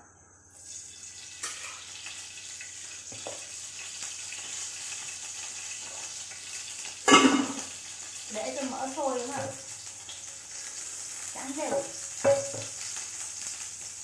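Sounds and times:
fat sizzling in a frying pan: 0:00.4 - 0:14.0
knock: 0:11.7 - 0:12.7.

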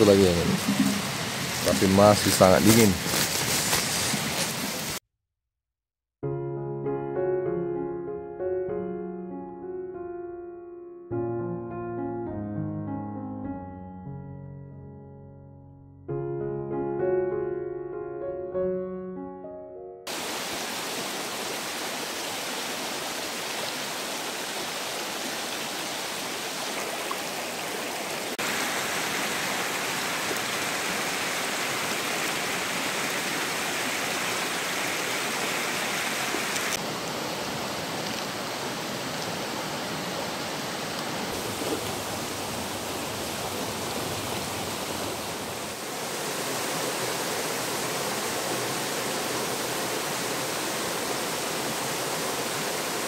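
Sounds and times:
stream and waterfall rushing: 0:00.0 - 0:05.0, 0:20.1 - 0:53.0.

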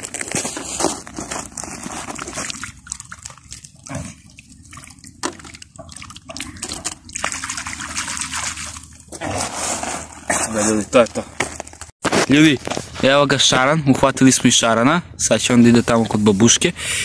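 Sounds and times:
water sloshing and dripping: 0:01.0 - 0:11.9
small water splashes: 0:01.8 - 0:09.4.

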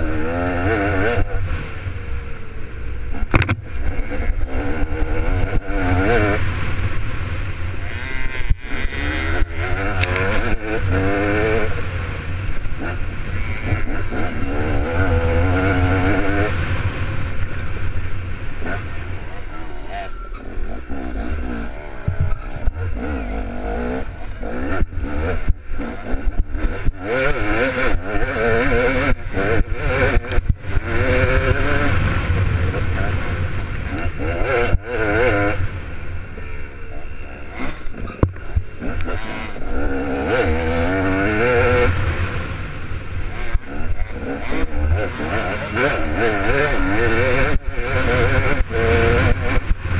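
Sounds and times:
dirt bike engine revving: 0:00.0 - 0:49.9.

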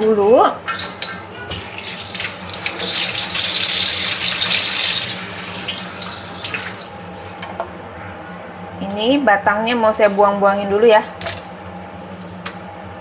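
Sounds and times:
tap water running into sink: 0:01.5 - 0:06.9.

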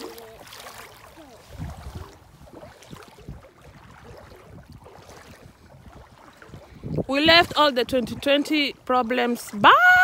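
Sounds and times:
water sloshing around boots: 0:00.0 - 0:10.0.

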